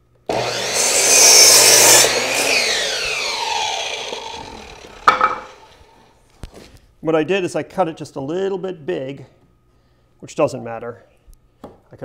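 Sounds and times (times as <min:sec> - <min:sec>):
circular saw cutting wood: 0:00.3 - 0:06.1
saw blade spinning down: 0:00.3 - 0:06.1.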